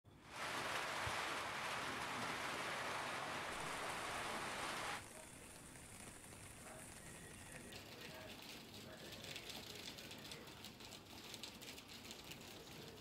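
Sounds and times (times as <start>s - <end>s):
rain hissing: 0.1s - 10.4s.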